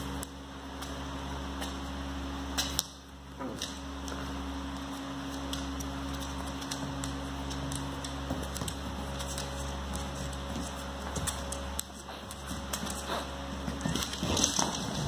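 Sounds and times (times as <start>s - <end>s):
steady low hum: 0.0s - 15.0s
dog claws clicking on hard floor: 2.6s - 15.0s
dogs scuffling: 3.6s - 15.0s.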